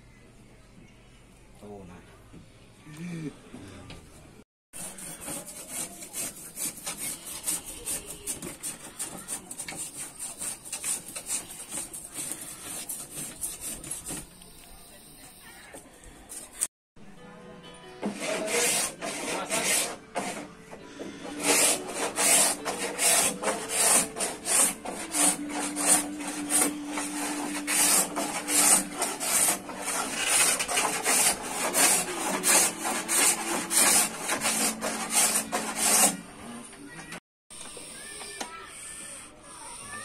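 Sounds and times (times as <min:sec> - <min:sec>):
hand tool scraping wood: 0:04.8 - 0:14.3, 0:18.0 - 0:36.2.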